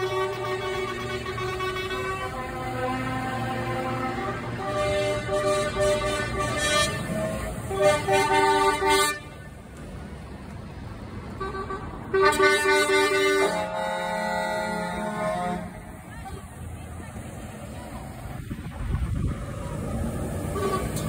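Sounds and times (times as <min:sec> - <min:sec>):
lower-pitched horn: 0:00.0 - 0:09.3, 0:11.4 - 0:15.8
truck air horns blowing: 0:00.0 - 0:09.5, 0:11.3 - 0:16.0, 0:20.4 - 0:21.0.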